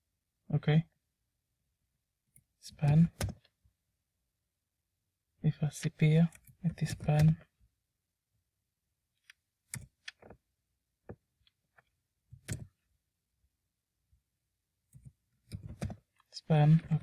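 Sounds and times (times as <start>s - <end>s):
computer mouse clicks: 9.2s - 10.4s, 12.4s - 12.7s.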